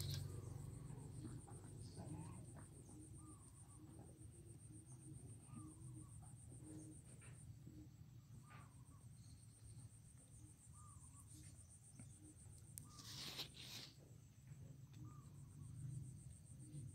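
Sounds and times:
brief rustle: 12.8 - 14.0.

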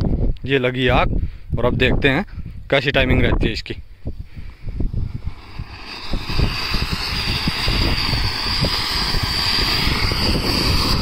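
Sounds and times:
firework fountain hissing: 4.7 - 11.0.

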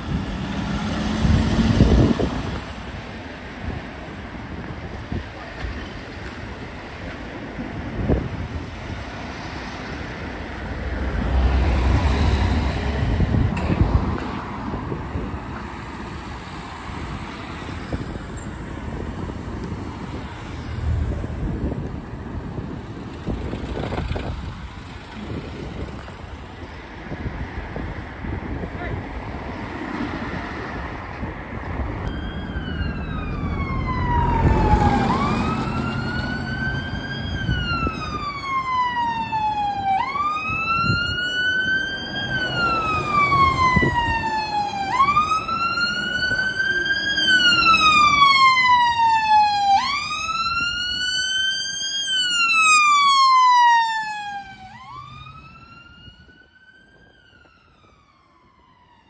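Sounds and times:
road and engine noise: 0.0 - 59.0
emergency siren wailing: 32.0 - 59.0.

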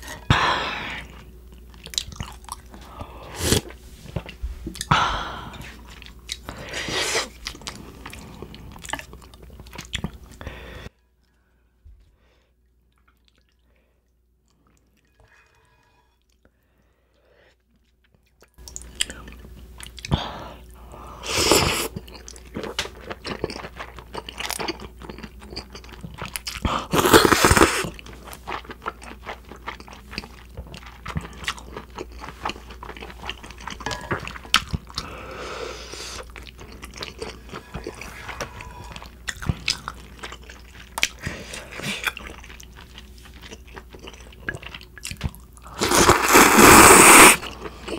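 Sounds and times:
chewing with wet clicks: 1.4 - 2.8, 7.4 - 10.4, 12.9 - 13.7, 17.6 - 20.2, 22.0 - 26.7, 27.9 - 35.1, 36.2 - 45.7
noodle slurps: 26.9 - 27.9, 45.7 - 47.5.

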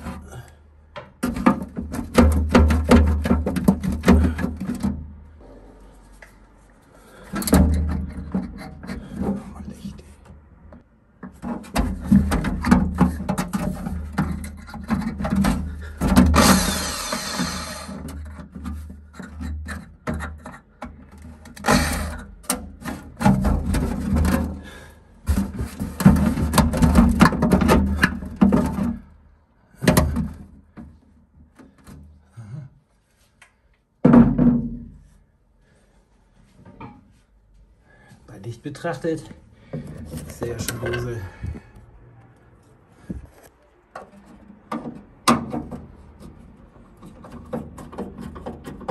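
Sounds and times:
drill bit grinding and whining: 16.4 - 18.0
electric drill boring a hole: 16.4 - 18.0.

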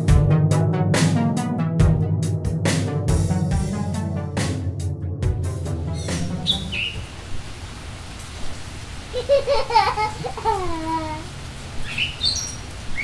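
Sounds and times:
rain-like hiss: 5.6 - 13.0.

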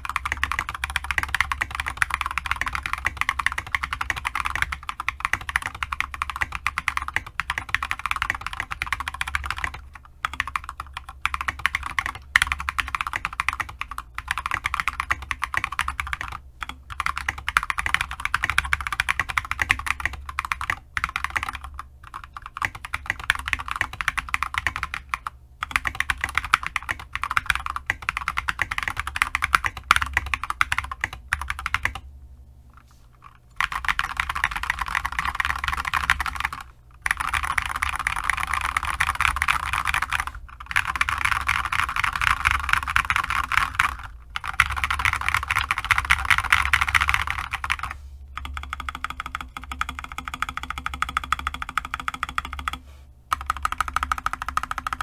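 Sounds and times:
mechanical keyboard typing: 0.0 - 32.0, 33.2 - 55.0.

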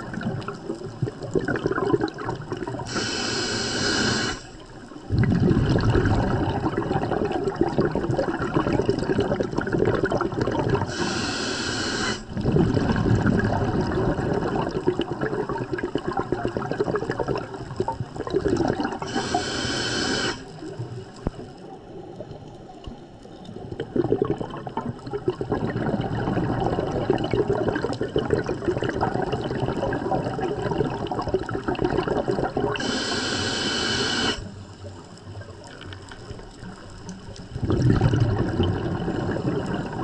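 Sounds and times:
exhaled bubbles underwater: 0.0 - 40.0
regulator hissing inhale: 2.9 - 4.7, 10.9 - 12.3, 19.0 - 20.6, 32.8 - 34.6.

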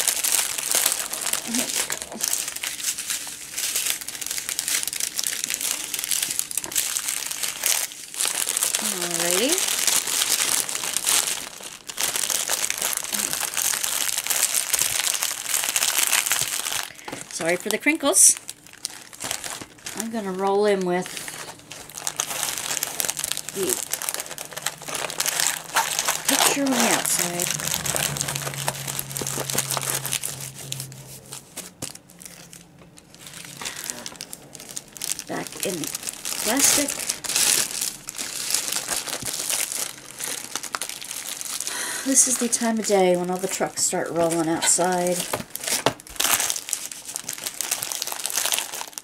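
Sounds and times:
plastic wrapping crinkling: 0.0 - 49.0.

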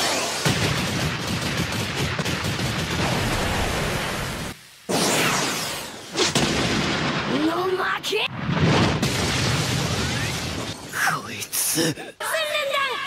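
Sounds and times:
rapid punch sound effects: 4.9 - 6.8.

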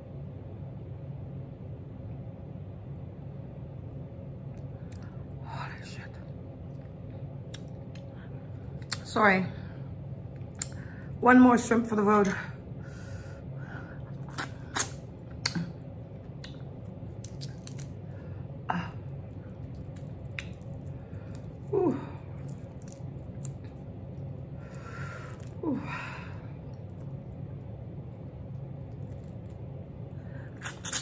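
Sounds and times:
steady low hum: 0.0 - 31.0
chewing: 19.1 - 21.7, 22.3 - 25.6, 28.1 - 29.7, 30.5 - 31.0
squeaky lip smacks: 30.6 - 31.0.

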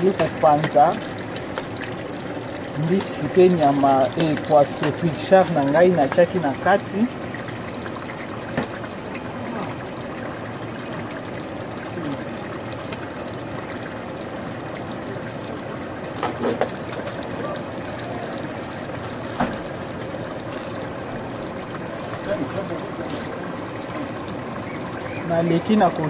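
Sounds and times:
pot boiling and bubbling: 0.0 - 26.0.

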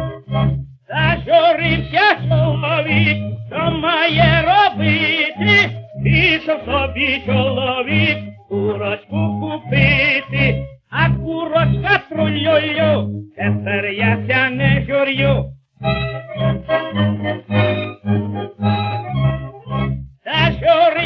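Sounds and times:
pulsing bass: 0.0 - 21.0
tenor singing with vibrato: 0.0 - 21.0
small orchestra playing: 1.3 - 10.5, 14.7 - 20.1.

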